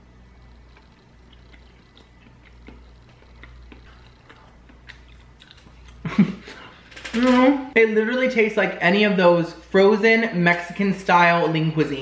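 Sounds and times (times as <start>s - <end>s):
man chewing food: 0.2s - 7.0s.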